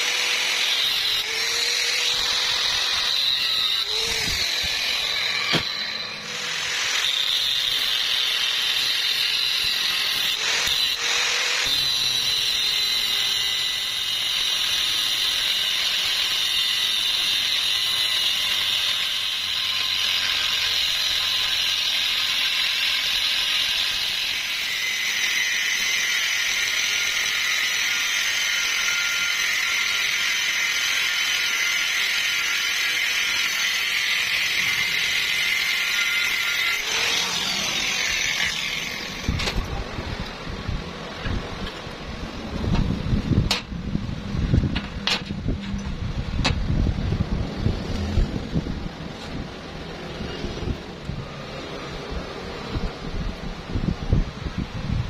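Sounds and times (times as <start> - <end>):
angle grinder cutting steel: 0.0 - 40.4.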